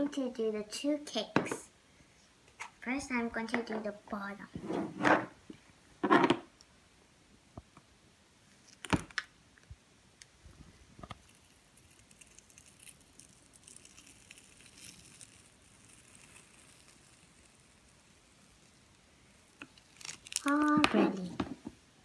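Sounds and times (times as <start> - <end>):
wet squishing and crackling: 11.1 - 20.9.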